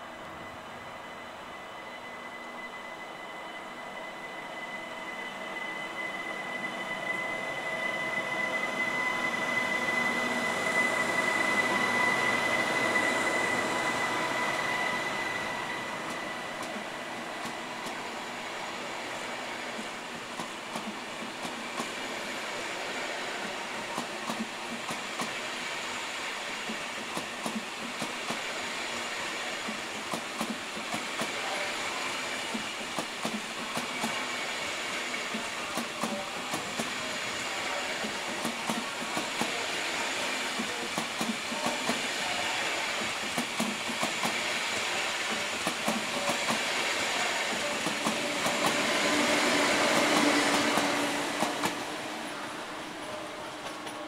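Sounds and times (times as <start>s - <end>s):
high-speed train passing: 0.0s - 54.0s
train wheel clicks on track: 16.0s - 18.0s, 19.7s - 22.0s, 23.4s - 25.4s, 26.6s - 28.5s, 29.6s - 31.6s, 32.4s - 34.3s, 35.1s - 37.1s, 37.9s - 39.6s, 40.5s - 51.9s.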